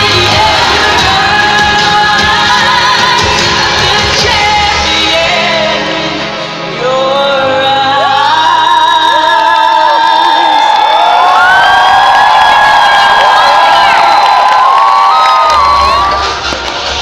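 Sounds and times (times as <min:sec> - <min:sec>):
pop backing track: 0:00.0 - 0:10.3
person singing live pop song: 0:00.0 - 0:11.6.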